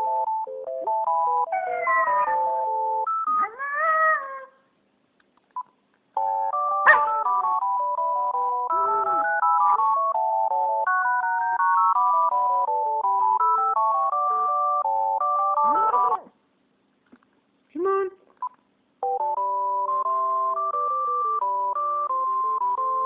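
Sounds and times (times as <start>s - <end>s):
phone ringtone melody: 0.0s - 3.5s, 6.2s - 16.2s, 19.0s - 23.0s
dog howling: 1.5s - 2.4s, 3.4s - 4.6s.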